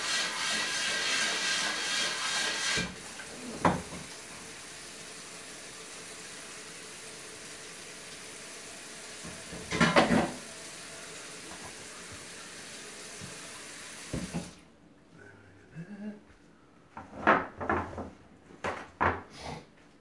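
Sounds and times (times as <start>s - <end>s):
faucet running into sink: 0.0s - 14.6s.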